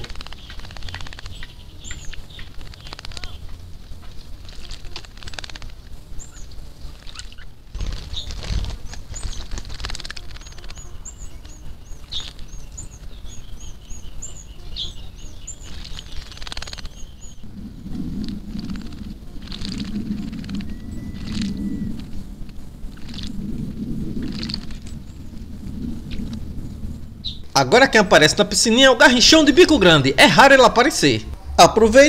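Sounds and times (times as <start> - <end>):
bird splashing and fluttering in water: 0.0 - 3.4, 4.4 - 12.5, 15.6 - 17.4, 18.2 - 23.4, 24.2 - 25.4.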